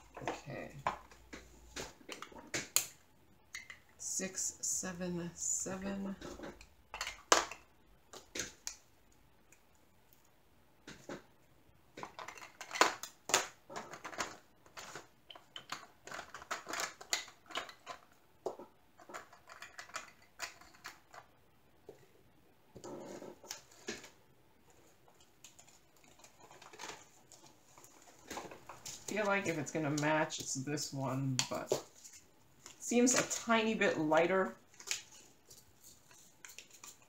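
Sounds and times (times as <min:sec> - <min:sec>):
plastic containers clicking and rustling: 0:00.0 - 0:03.9, 0:06.0 - 0:08.8, 0:11.9 - 0:21.3, 0:24.9 - 0:30.6, 0:31.3 - 0:33.7, 0:34.6 - 0:37.0.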